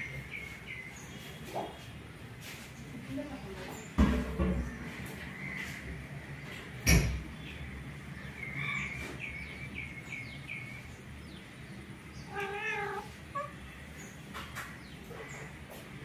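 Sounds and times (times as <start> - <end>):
cat meowing: 12.2 - 13.6.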